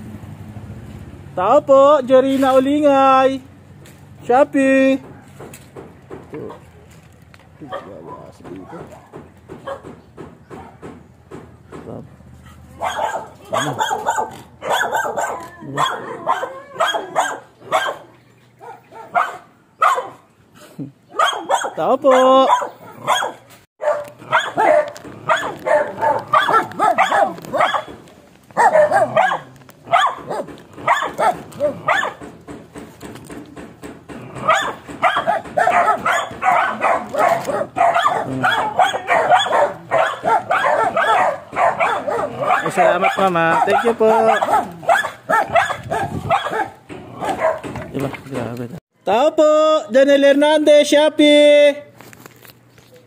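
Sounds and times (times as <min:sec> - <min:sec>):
dog barking: 0:06.4 - 0:06.7, 0:07.6 - 0:10.9, 0:12.5 - 0:20.3, 0:21.1 - 0:32.2, 0:34.4 - 0:47.8.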